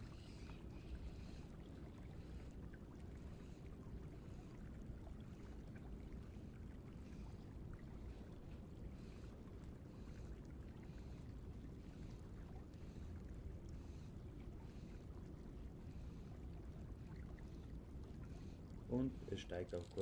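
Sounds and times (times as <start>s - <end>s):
river water flowing: 18.2s - 20.0s
light ticks: 19.5s - 20.0s.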